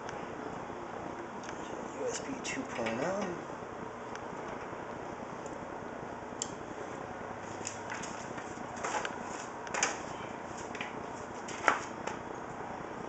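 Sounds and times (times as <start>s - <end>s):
steady background hiss: 0.0s - 13.0s
cable rustling: 7.4s - 12.2s.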